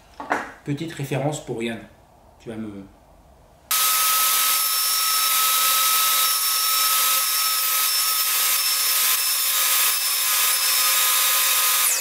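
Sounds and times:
saw blade cutting wood: 3.7 - 12.0
table saw whining: 3.7 - 12.0.

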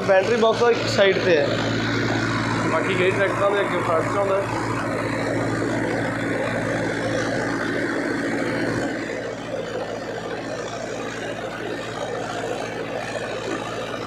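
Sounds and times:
tractor engine drone: 0.0 - 14.0.

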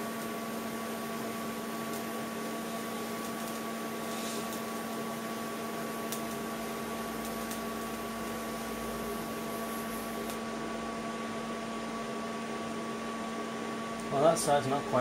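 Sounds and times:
welding arc hissing: 0.0 - 10.8.

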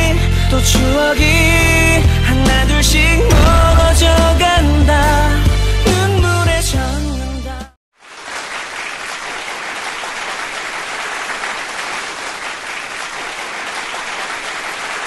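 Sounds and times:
applause: 7.9 - 15.0.

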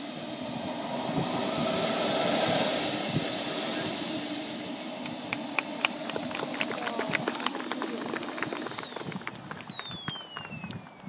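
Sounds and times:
model jet engine whining: 0.0 - 11.0
sharp clicks: 4.6 - 11.0.

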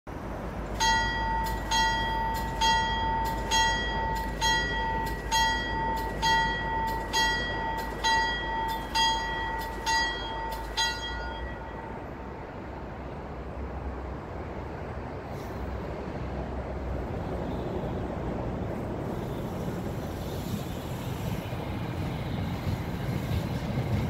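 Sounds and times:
low rumble of train: 0.1 - 24.0
train warning bell ringing: 0.7 - 12.5.

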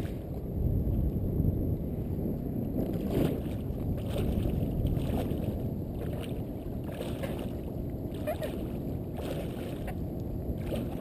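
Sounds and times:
wind rumble on microphone: 0.0 - 11.0
water splashing against float tube: 2.8 - 11.0.

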